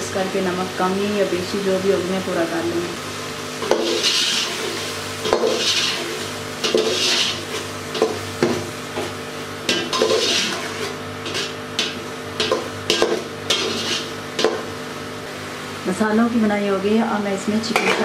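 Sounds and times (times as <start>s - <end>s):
masala sizzling in a pot: 0.0s - 16.6s
metal spatula scraping a pot: 3.6s - 8.2s, 9.7s - 14.5s.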